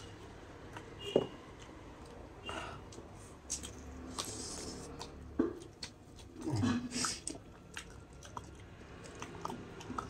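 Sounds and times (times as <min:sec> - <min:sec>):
man chewing with smacking: 0:02.9 - 0:10.0.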